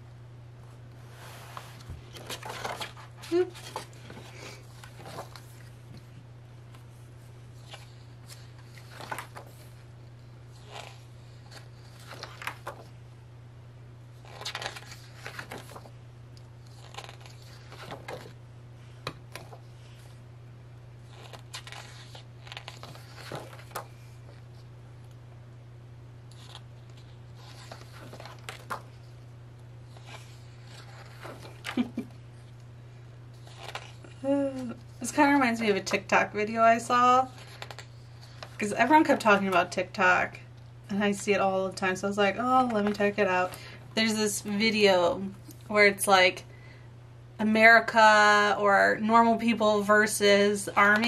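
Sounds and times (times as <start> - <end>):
steady low hum: 0.0 - 51.0
pages turning: 1.5 - 6.1, 7.6 - 12.9, 14.2 - 15.9, 16.6 - 18.4, 19.0 - 20.1, 21.0 - 24.7, 26.3 - 29.1, 29.9 - 32.1, 33.3 - 34.1, 37.3 - 38.7
paper and packaging rustling: 2.0 - 5.7.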